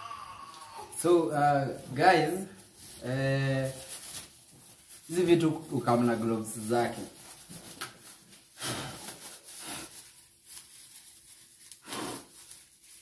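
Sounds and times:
plastic gloves rustling: 0:00.0 - 0:13.0.

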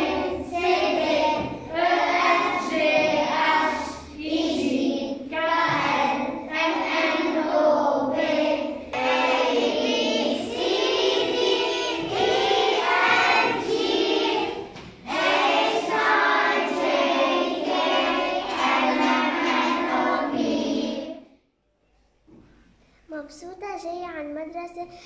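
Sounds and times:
children's choir singing: 0:00.0 - 0:21.3.

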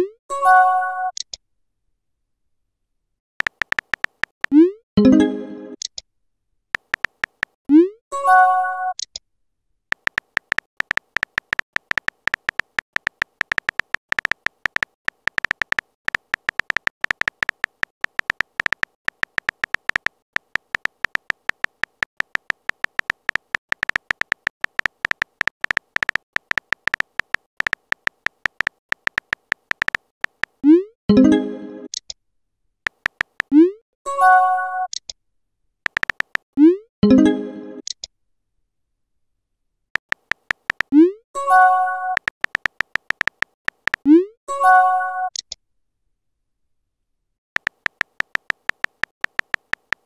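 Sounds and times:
synthetic keyboard typing ticks: 0:03.4 - 0:04.8, 0:06.8 - 0:07.9, 0:09.9 - 0:30.9, 0:32.9 - 0:33.8, 0:35.8 - 0:36.8, 0:40.0 - 0:41.2, 0:42.0 - 0:44.3, 0:47.6 - 0:50.0.

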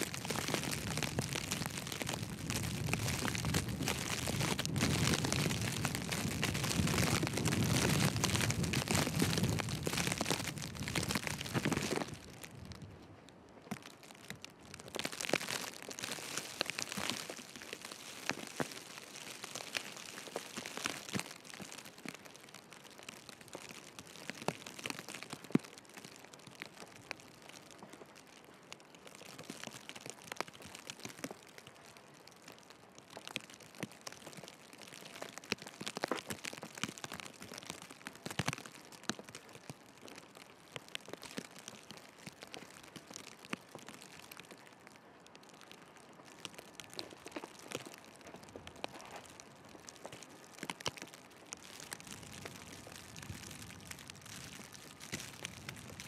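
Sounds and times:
footsteps crunching in snow: 0:00.0 - 0:12.8
soft rustle of snowfall: 0:00.0 - 0:56.0
wind rushing on microphone: 0:00.7 - 0:13.0.

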